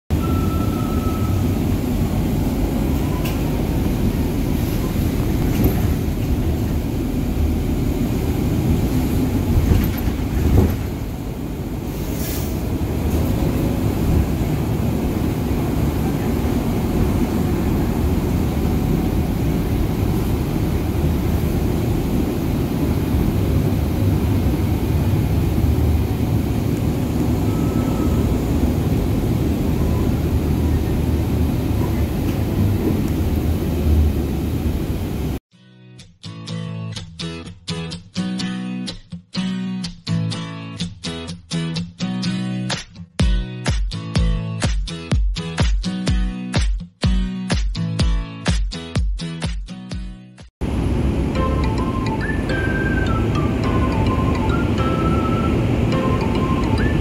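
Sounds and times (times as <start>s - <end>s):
road and engine rumble: 0.1s - 35.4s, 50.6s - 57.0s.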